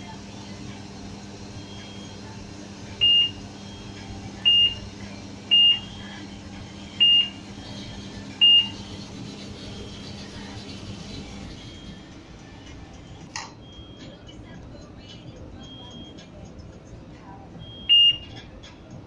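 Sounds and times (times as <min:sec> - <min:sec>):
short high beeps: 0:13.4 - 0:14.2.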